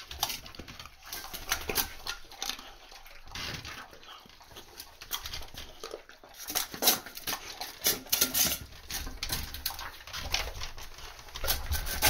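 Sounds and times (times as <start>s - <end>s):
puppies chewing and crunching: 0.0s - 12.0s
metal bowls clinking on tiles: 7.8s - 9.0s.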